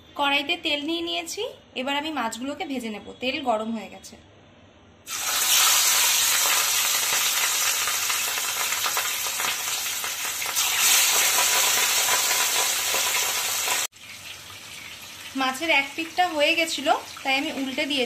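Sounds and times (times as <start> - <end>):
fish sizzling in hot oil: 5.1 - 18.0.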